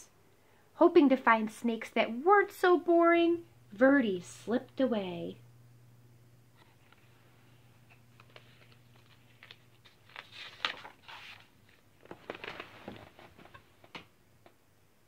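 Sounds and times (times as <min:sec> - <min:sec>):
paper rustling: 0:07.8 - 0:14.0.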